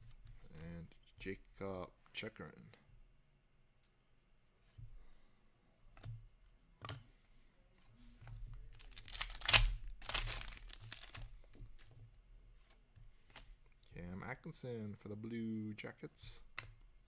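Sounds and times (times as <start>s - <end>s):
foil wrapper crinkling: 8.7s - 11.2s.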